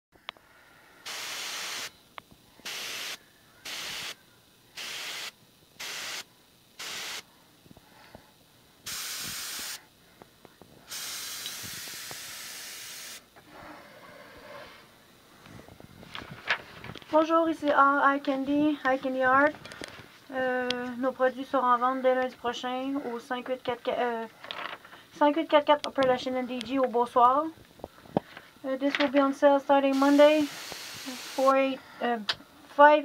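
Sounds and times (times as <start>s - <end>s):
airbrush spraying hiss: 1.0s - 2.0s, 2.6s - 7.3s, 8.8s - 9.9s, 10.8s - 13.3s, 29.9s - 31.8s.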